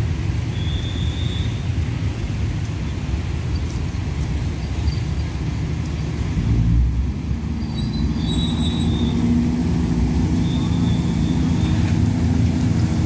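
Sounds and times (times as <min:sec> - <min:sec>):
train low rumble: 0:01.6 - 0:13.0
faint high squeals: 0:07.6 - 0:09.3, 0:10.3 - 0:12.0.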